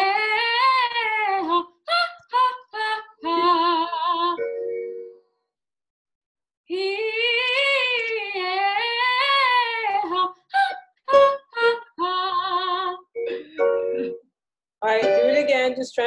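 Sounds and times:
woman singing vocal exercise: 0:00.0 - 0:04.4, 0:06.7 - 0:14.2, 0:14.8 - 0:15.8.

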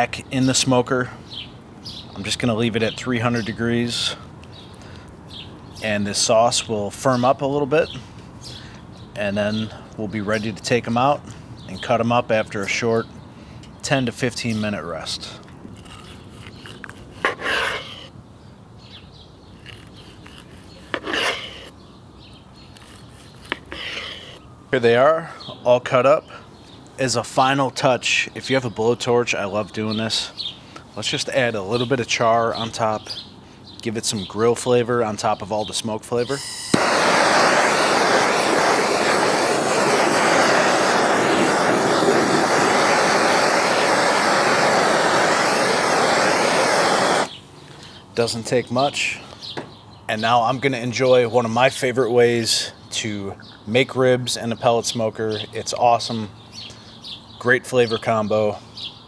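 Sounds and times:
knife slicing through ribs: 0:15.7 - 0:18.1, 0:19.6 - 0:21.7, 0:22.7 - 0:24.4
blade scraping cutting board: 0:15.8 - 0:18.1, 0:19.6 - 0:21.7, 0:22.7 - 0:24.4
blowtorch hissing: 0:36.4 - 0:47.4.

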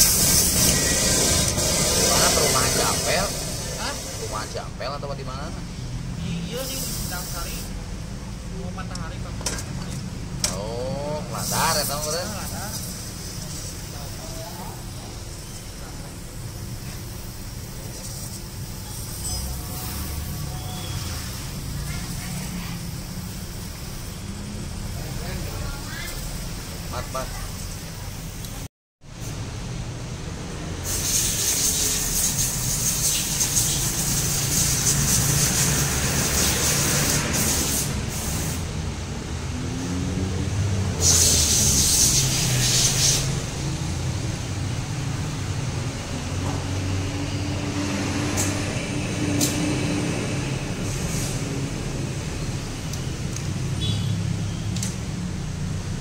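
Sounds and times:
aerosol spray hissing: 0:00.0 - 0:04.6, 0:06.6 - 0:07.7, 0:30.8 - 0:38.7, 0:41.0 - 0:43.4.

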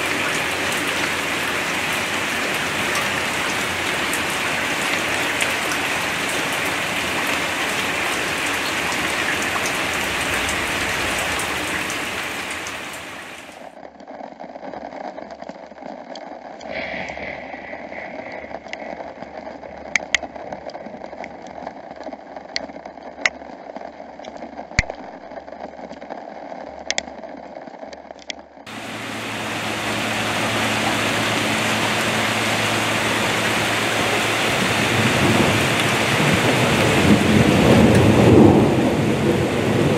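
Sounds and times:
heavy rain pouring: 0:00.0 - 0:13.8, 0:16.6 - 0:21.7, 0:28.7 - 0:39.9
rain drips ticking: 0:00.0 - 0:13.8, 0:18.5 - 0:23.5, 0:28.2 - 0:39.9.

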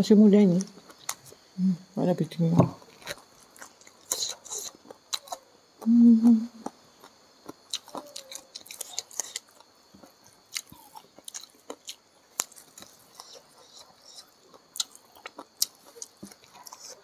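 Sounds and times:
wet chewing clicks and smacks: 0:02.9 - 0:05.4, 0:06.6 - 0:17.0
closed-mouth hum: 0:04.1 - 0:06.8.

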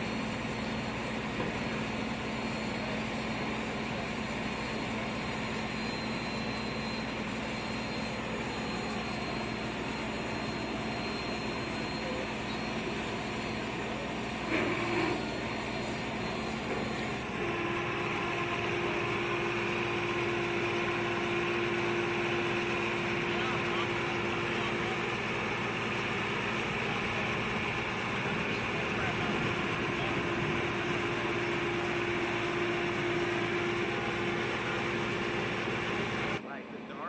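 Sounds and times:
ground equipment humming: 0:08.0 - 0:37.0.

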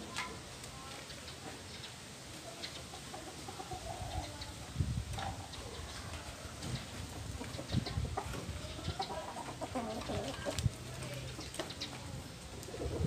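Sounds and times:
birds calling: 0:05.3 - 0:12.1.

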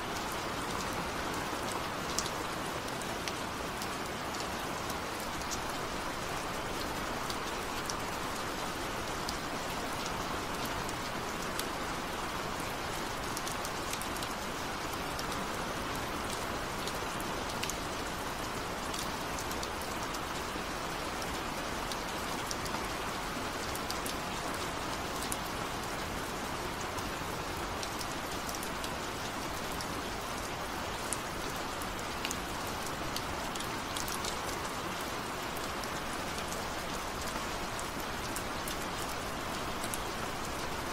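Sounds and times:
steady rain hiss: 0:00.0 - 0:40.9.

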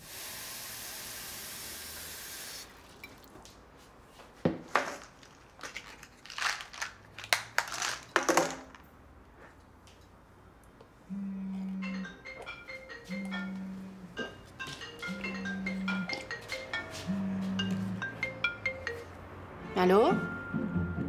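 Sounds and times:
pills clicking and rattling: 0:05.0 - 0:08.8.

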